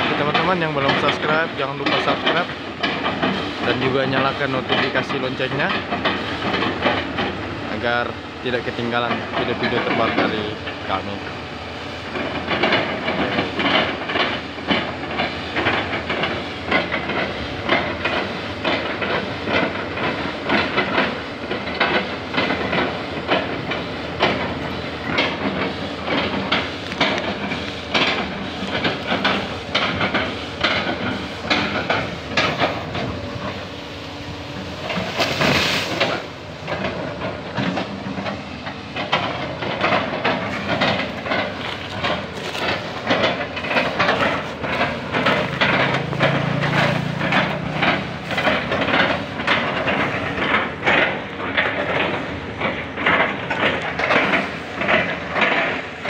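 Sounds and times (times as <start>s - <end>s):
excavator diesel engine under load: 0.0s - 56.0s
wood cracking and crunching: 41.0s - 49.0s.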